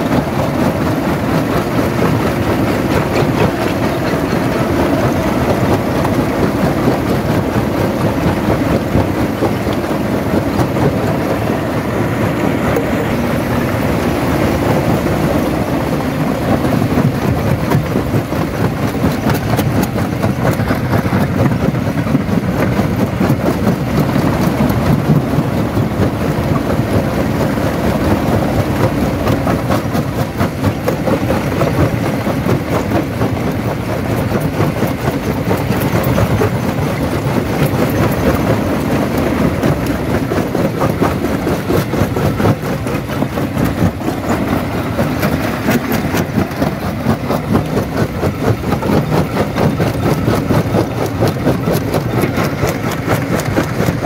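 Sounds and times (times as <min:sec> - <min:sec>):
jaw crusher rumbling: 0:00.0 - 0:54.0.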